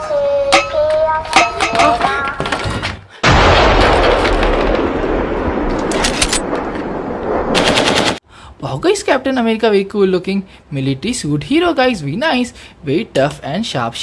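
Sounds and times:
explosion blast and rumble: 3.2 - 8.2.

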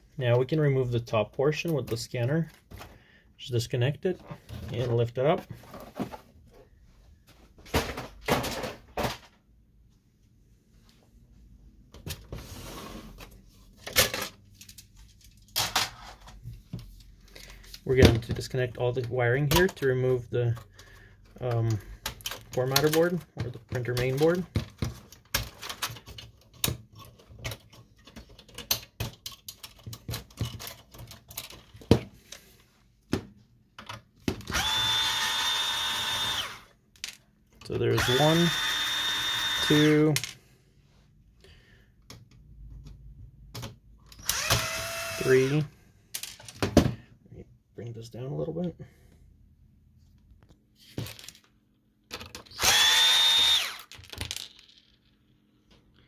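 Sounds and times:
cordless drill whining: 34.5 - 36.7, 38.0 - 40.0, 44.2 - 45.7, 52.5 - 53.9
electric screwdriver running: 34.5 - 36.7, 38.0 - 40.0, 44.2 - 45.6, 52.6 - 53.9.

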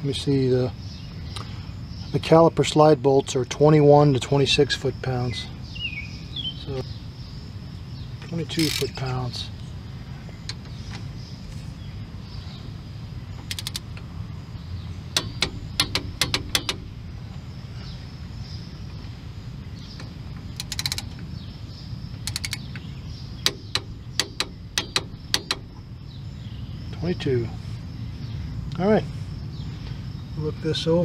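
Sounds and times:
torque wrench clicking: 8.5 - 9.1, 13.4 - 14.0, 15.2 - 17.0, 20.6 - 21.2, 22.2 - 22.8, 23.4 - 25.8.

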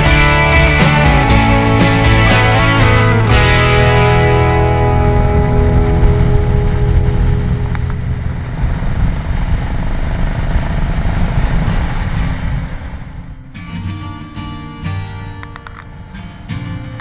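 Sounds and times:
guitar music: 0.0 - 9.9, 11.0 - 17.0
motorcycle engine running: 0.0 - 13.6
wind rumble on microphone: 1.3 - 14.1.

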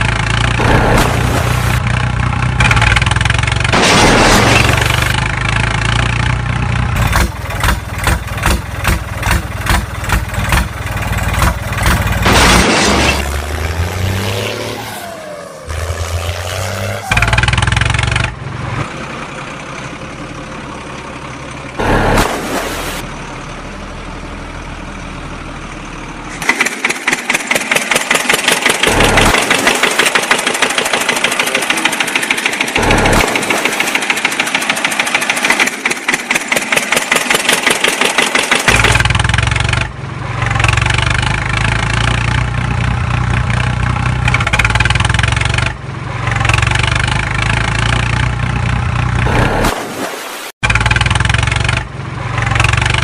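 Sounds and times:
tractor engine running: 0.0 - 14.3, 15.2 - 49.8, 50.6 - 53.0.

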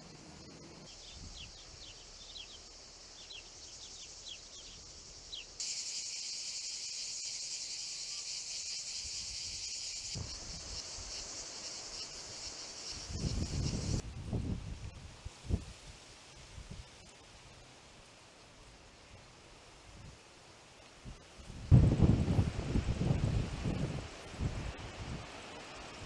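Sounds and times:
cicadas buzzing: 0.0 - 14.0.

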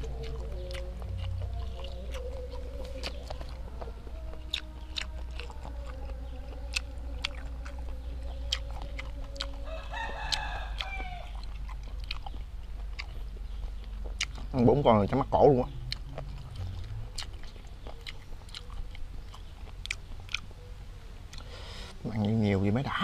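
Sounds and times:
rooster crowing: 0.0 - 11.6
close-up chewing clicks and smacks: 0.0 - 22.5.

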